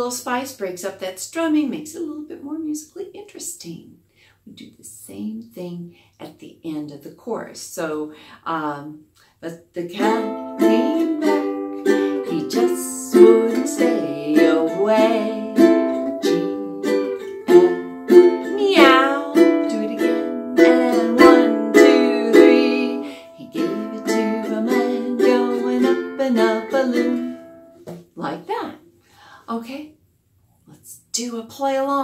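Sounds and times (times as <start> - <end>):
woman singing: 9.7 - 27.5, 28.2 - 28.7
ukulele strumming: 9.9 - 28.7.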